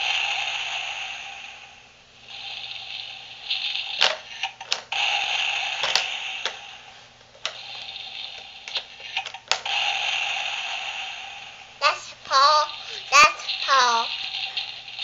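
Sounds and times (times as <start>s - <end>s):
steady electronic toy sound: 0.0s - 15.0s
plastic toy clicks and knocks: 4.0s - 4.9s, 5.8s - 6.6s, 7.3s - 9.7s.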